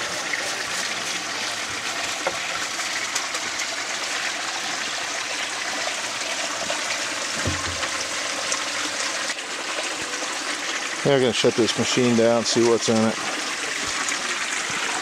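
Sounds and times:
water running and splashing: 0.0s - 15.0s.

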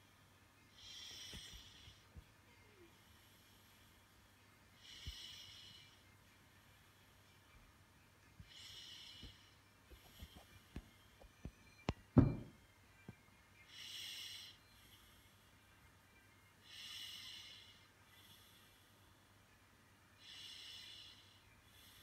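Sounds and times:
faint breathing: 0.0s - 7.4s, 8.3s - 10.7s, 13.6s - 19.5s, 20.1s - 22.0s
loud thump: 12.2s - 12.6s.

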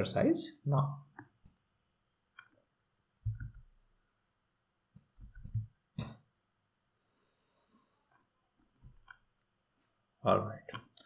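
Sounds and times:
man throat and breath sounds: 5.9s - 6.3s.

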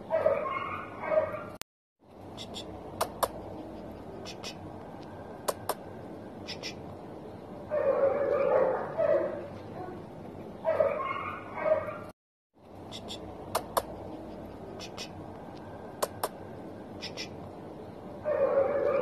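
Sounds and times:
dog yipping and whining: 0.1s - 1.6s.

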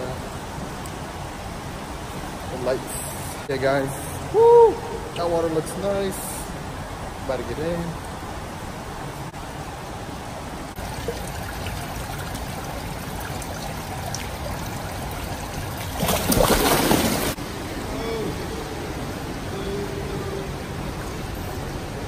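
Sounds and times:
indoor pool watery hiss: 0.0s - 22.0s
person splashing into pool: 15.8s - 17.4s.

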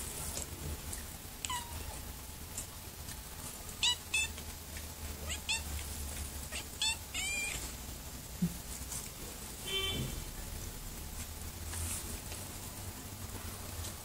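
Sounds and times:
kitten mewing: 1.4s - 2.0s, 6.5s - 7.6s.

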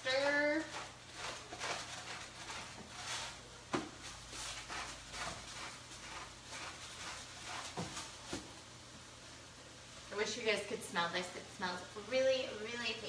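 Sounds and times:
rasping strokes in a skillet: 0.0s - 8.4s.

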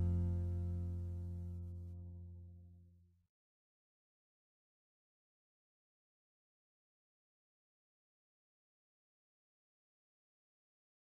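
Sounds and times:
background music held chord: 0.0s - 2.7s.

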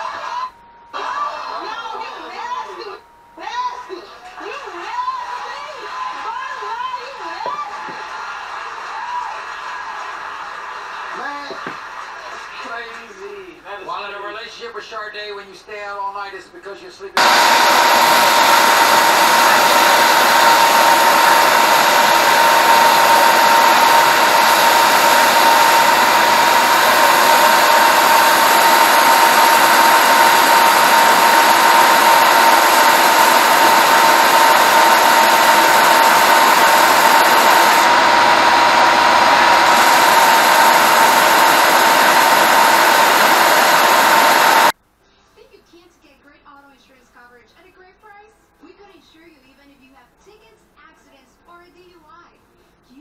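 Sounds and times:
belt sander sanding wood: 17.2s - 44.7s.

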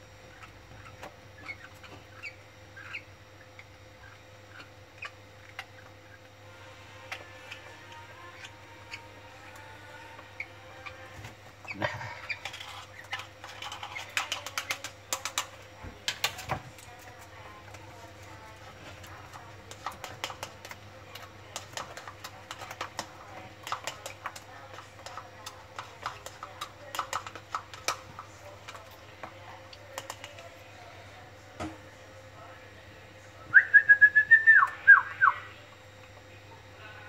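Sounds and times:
bird chicks clicking: 12.2s - 17.8s, 19.0s - 29.0s, 29.6s - 30.4s.

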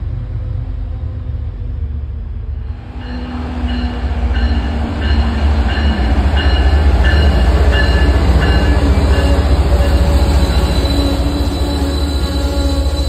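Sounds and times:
diesel locomotive engine rumbling: 0.0s - 13.0s
locomotive bell ringing: 3.0s - 13.0s.

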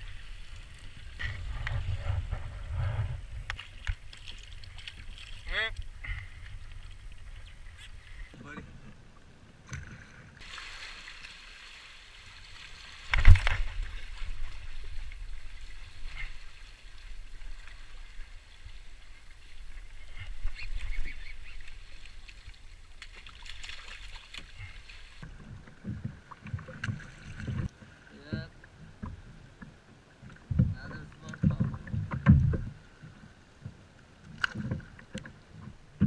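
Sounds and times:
wind rumbling on microphone: 0.0s - 8.9s
waves splashing against hull: 9.6s - 36.0s.

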